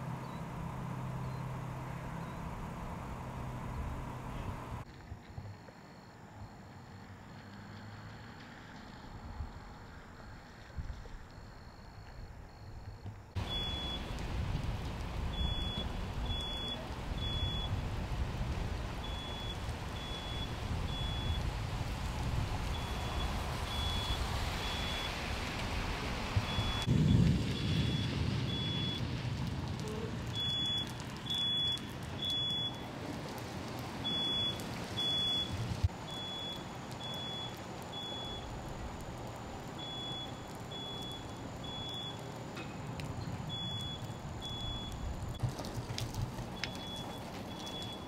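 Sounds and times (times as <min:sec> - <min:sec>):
steady rain: 0:13.3 - 0:48.0
electronic alarm beeping: 0:13.5 - 0:14.1, 0:15.3 - 0:17.7, 0:19.1 - 0:21.4, 0:22.8 - 0:25.1, 0:27.8 - 0:29.0, 0:30.4 - 0:32.8, 0:34.1 - 0:38.5, 0:39.8 - 0:42.2, 0:43.5 - 0:45.0, 0:46.6 - 0:48.0.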